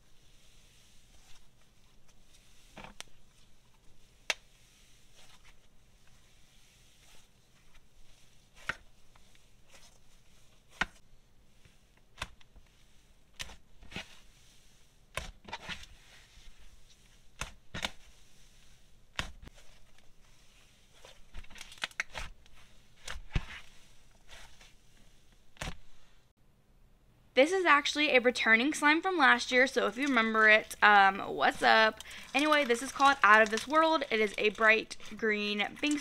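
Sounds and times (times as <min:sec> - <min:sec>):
slime crackling and popping: 0:31.5 - 0:35.0.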